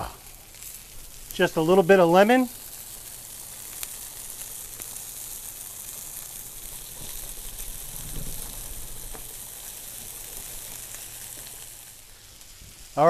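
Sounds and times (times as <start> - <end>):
fish sizzling in oil: 0.0 - 13.0.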